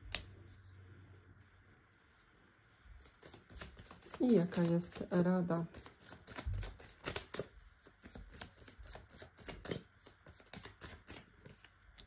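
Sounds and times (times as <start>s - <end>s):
cards being shuffled: 0.0s - 0.4s, 3.0s - 12.0s.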